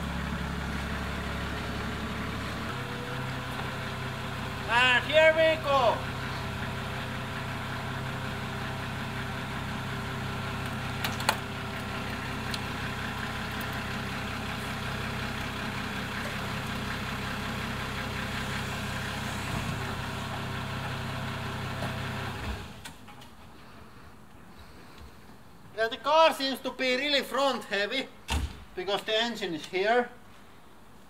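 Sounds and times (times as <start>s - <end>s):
car lift motor running: 5.7s - 22.8s.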